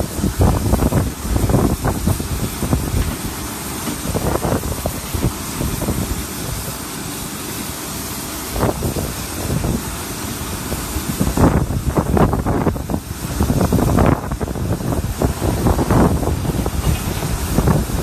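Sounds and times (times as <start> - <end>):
wind buffeting microphone: 0.0 - 6.8, 8.5 - 18.0
airport background hiss: 0.0 - 18.0.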